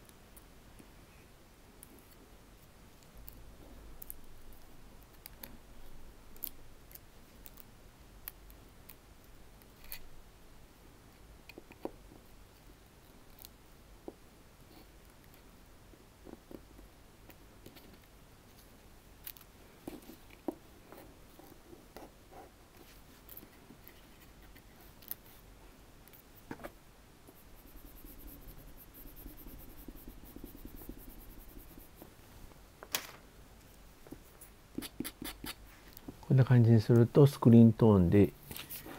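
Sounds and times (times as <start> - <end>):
craft knife scratching paper: 27.3 - 32.0.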